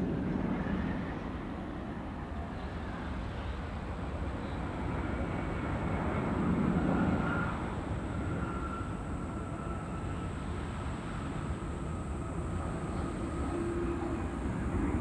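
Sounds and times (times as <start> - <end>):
faint high engine whine: 0.0 - 15.0
jet engines rumbling: 0.0 - 15.0.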